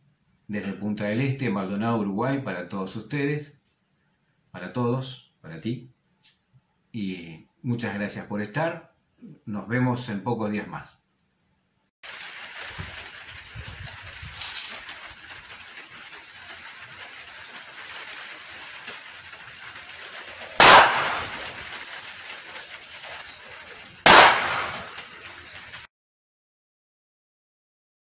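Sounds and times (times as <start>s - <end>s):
gunshots: 20.4s - 22.2s, 24.0s - 25.3s.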